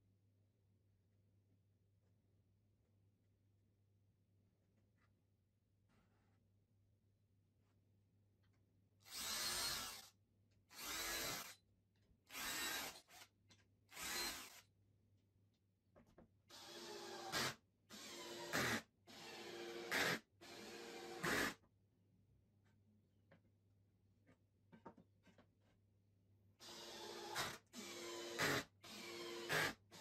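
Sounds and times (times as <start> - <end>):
drill driving screws: 9.1 - 10.1, 10.7 - 11.6, 12.3 - 13.2, 13.9 - 14.6, 16.5 - 21.6, 26.6 - 30.0.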